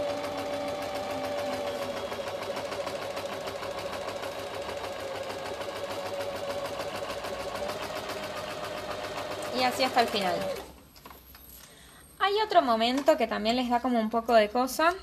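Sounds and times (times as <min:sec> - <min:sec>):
sewing machine running: 0:00.0 - 0:10.7.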